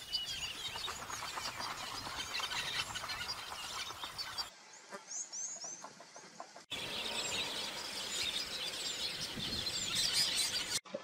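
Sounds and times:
high sweeping bird chirps: 0.0 - 4.5, 6.7 - 10.8
chorus of bird calls: 0.0 - 11.0.

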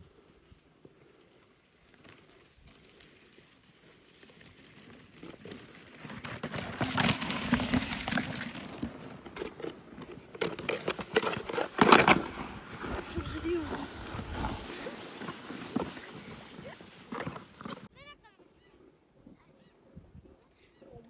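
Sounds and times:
sleds scraping over snow: 0.0 - 18.7
snow spraying: 12.2 - 17.9.

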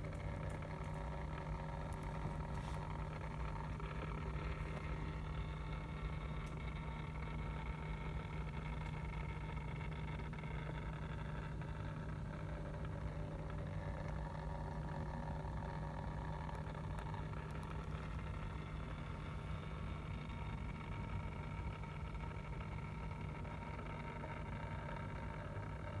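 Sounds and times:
motorized turntable humming: 0.0 - 26.0.

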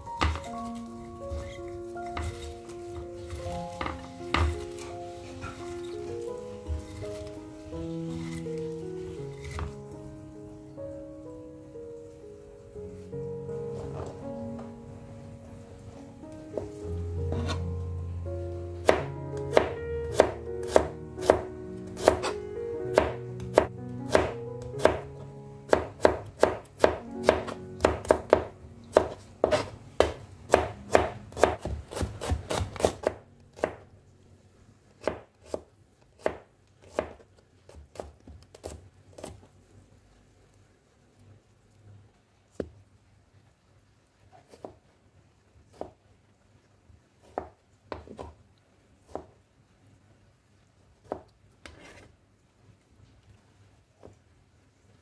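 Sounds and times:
background music: 0.0 - 35.2
knife chopping on cutting board: 0.2 - 0.5, 1.3 - 2.6, 3.2 - 4.9, 9.3 - 9.8, 17.3 - 17.6, 18.8 - 22.4, 23.0 - 25.1, 25.7 - 33.8, 35.0 - 39.4, 47.2 - 48.4.

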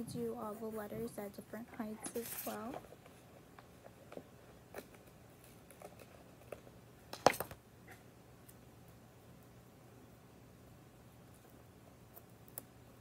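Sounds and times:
stickers peeling and rustling: 2.0 - 7.6.

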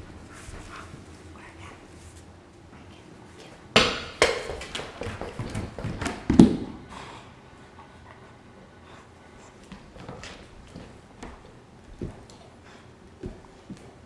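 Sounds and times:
puppy paws and claws on tile: 0.0 - 3.6, 4.2 - 6.7, 8.9 - 14.0.

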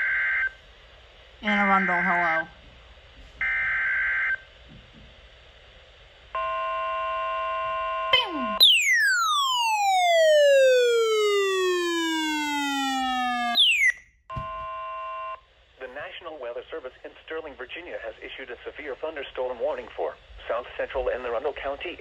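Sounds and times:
falling siren-like sweep: 8.6 - 14.0
steady multi-tone alert tone: 8.6 - 15.4.

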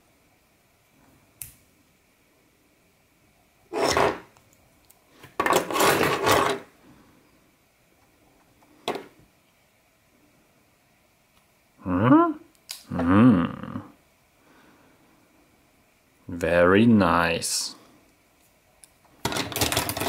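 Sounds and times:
metal knives rubbing and clattering: 3.7 - 4.3, 5.4 - 6.7.

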